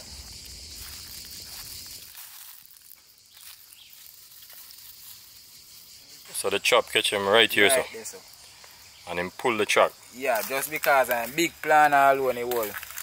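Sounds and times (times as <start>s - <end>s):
footsteps crunching dry leaves: 0.0s - 5.5s, 10.2s - 13.0s
high-pitched insect drone: 0.0s - 13.0s.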